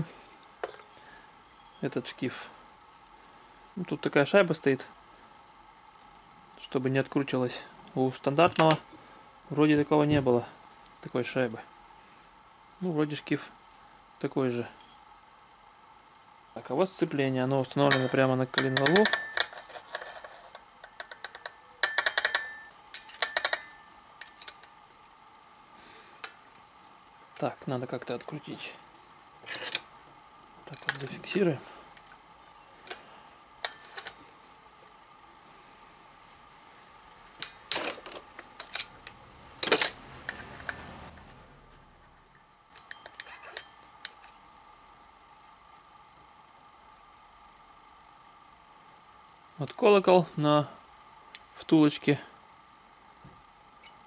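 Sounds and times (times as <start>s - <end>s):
metal tools clinking: 17.9s - 24.6s, 39.6s - 40.8s.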